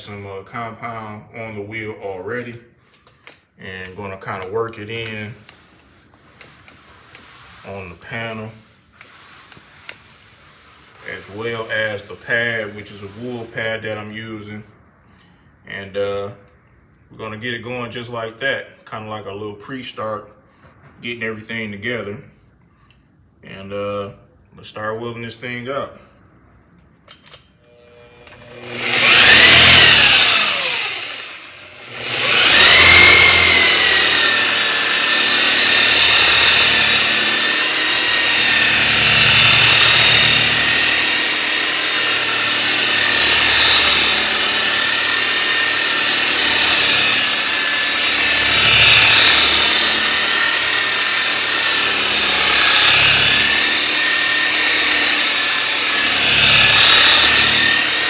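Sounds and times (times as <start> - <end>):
rotary polisher spinning: 4.1 - 13.8, 27.7 - 58.0.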